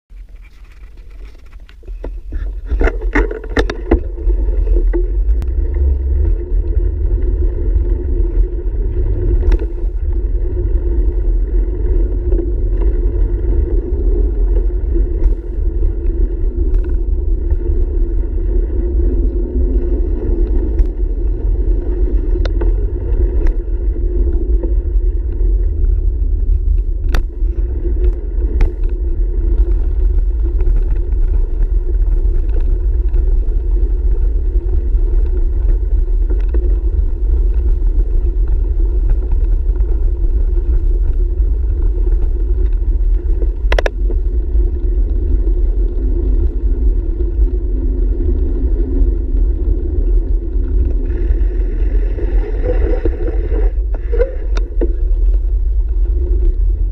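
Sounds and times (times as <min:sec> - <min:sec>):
wind rumble on camera: 0:00.1 - 0:56.9.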